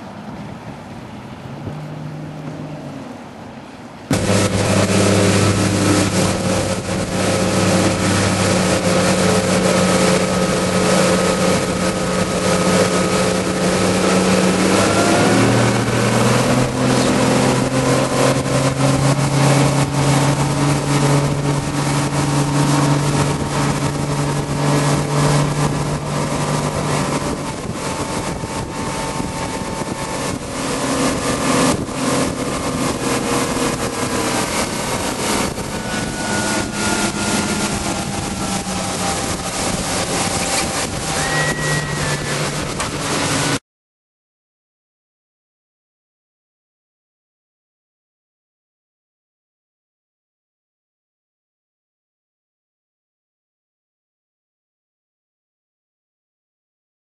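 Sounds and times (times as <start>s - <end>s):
outboard engine running hard: 0.0s - 43.6s
rushing water and wind: 0.0s - 43.6s.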